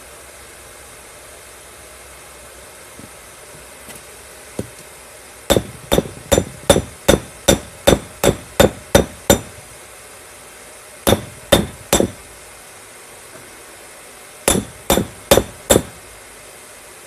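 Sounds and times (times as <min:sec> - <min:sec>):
hammer striking metal on anvil: 0:05.5 - 0:09.6, 0:11.1 - 0:12.2, 0:14.5 - 0:16.0.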